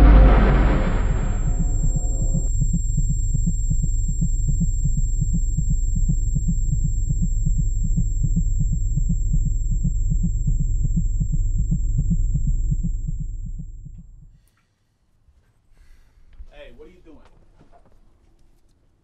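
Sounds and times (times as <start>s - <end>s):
low heartbeat-like throb: 0.0s - 14.4s
steady deep hum: 0.0s - 14.4s.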